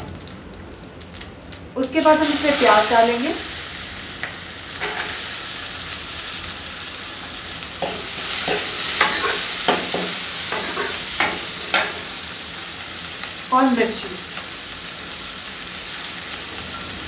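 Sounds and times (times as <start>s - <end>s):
onions sizzling in oil: 0.1s - 17.0s
ladle clinking and scraping pan: 4.8s - 5.2s, 7.8s - 12.1s.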